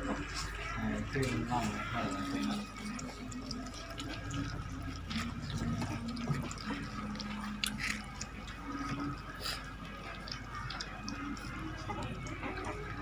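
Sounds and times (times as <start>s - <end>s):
puppies chewing and smacking: 0.0s - 13.0s.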